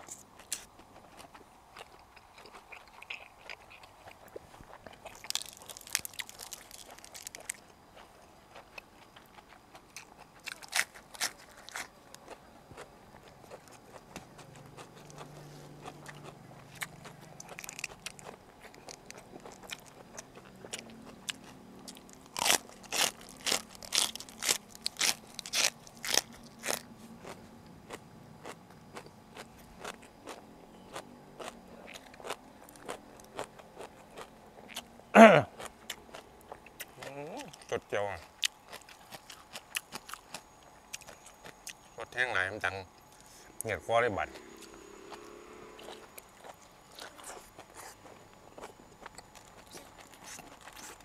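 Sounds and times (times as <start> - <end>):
biting and chewing: 0.0 - 42.4, 43.0 - 51.0
loud crunches: 2.4 - 7.6, 9.4 - 34.8.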